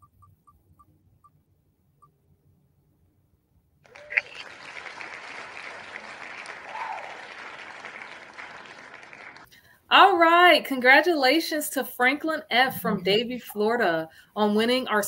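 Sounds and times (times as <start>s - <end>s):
recorded applause and cheering: 3.9s - 9.5s.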